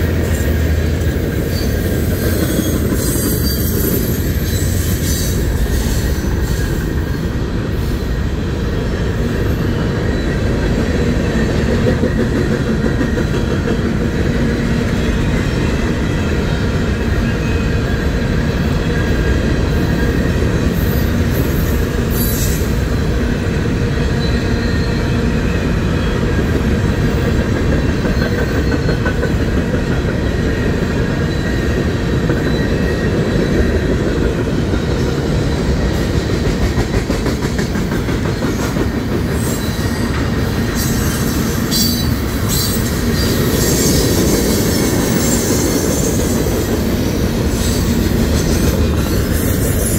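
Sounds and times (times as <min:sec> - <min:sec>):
high wheel squeal: 0:01.5 - 0:08.2, 0:19.7 - 0:23.0, 0:38.5 - 0:49.9.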